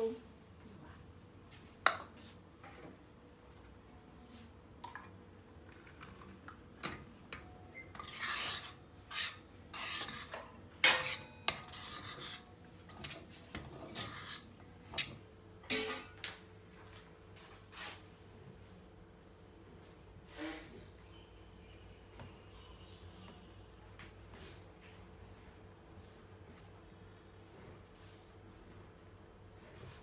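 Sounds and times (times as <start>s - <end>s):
utensil scraping metal pot: 7.8s - 16.1s
utensil clanking on metal: 9.7s - 16.2s.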